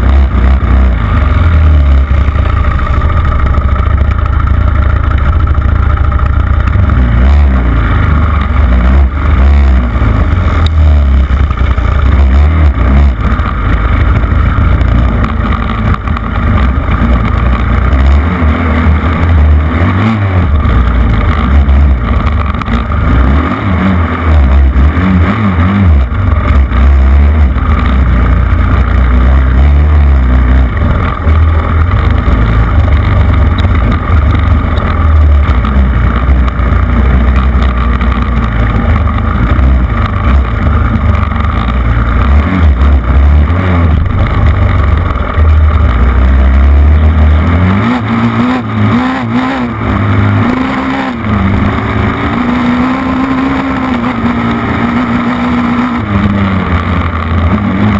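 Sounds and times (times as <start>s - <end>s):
off-road vehicle engine: 0.0s - 57.9s.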